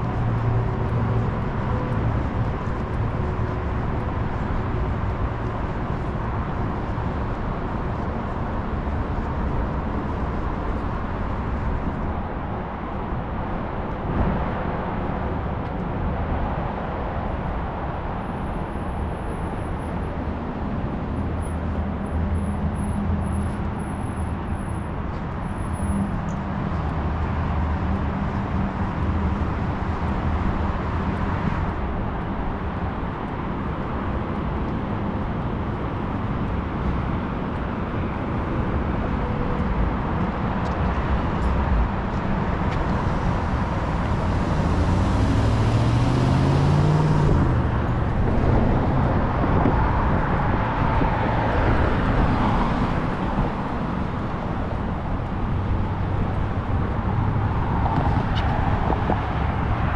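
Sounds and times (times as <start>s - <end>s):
street traffic: 0.0s - 59.9s
car accelerating past: 44.2s - 49.1s.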